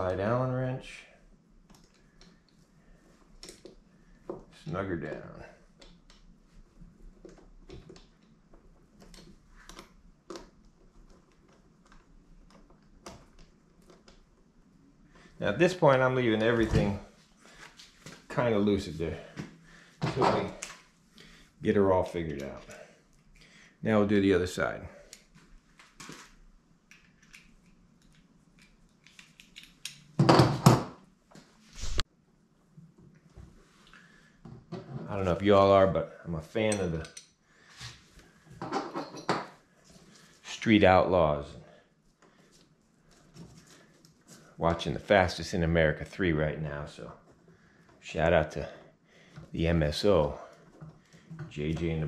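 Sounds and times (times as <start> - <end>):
light clicks and taps of tools: 1.6 - 2.6, 3.3 - 4.5, 25.1 - 26.2, 26.9 - 30.1, 36.7 - 37.4.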